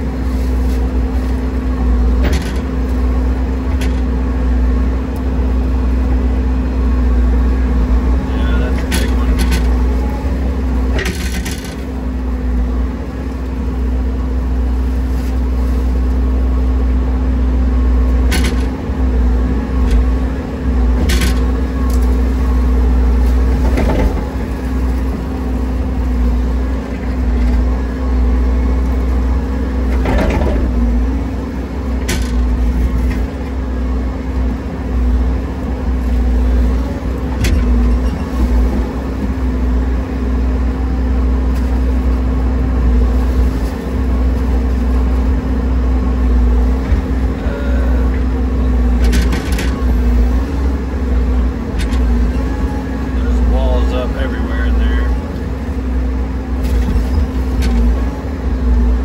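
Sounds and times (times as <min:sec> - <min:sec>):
heavy machine engine droning: 0:00.0 - 0:59.0
knocks and clanks of equipment: 0:23.5 - 0:24.4, 0:29.9 - 0:30.8.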